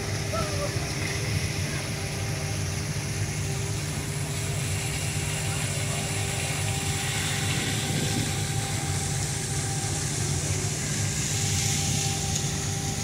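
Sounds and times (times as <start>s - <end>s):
ship engines rumbling: 0.0s - 13.0s
wind hissing across microphone: 0.0s - 13.0s.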